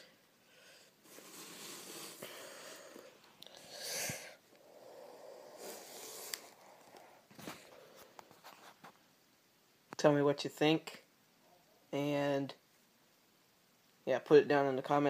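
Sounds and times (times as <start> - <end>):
cardboard mask rustling and scraping: 1.0 - 2.2, 6.9 - 9.1.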